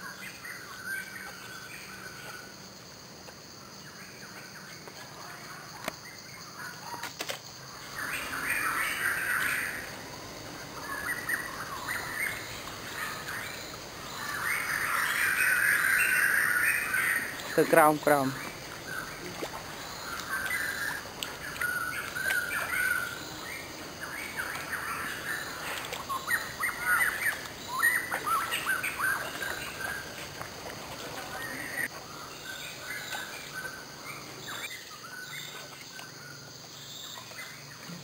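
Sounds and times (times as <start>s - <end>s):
birds chirping: 7.6s - 38.0s.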